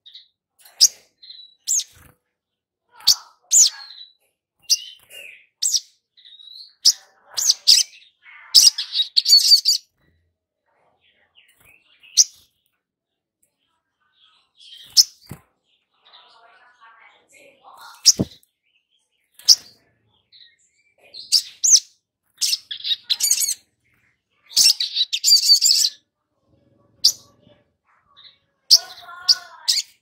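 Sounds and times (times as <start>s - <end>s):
bird chirping and twittering: 0.0s - 30.0s.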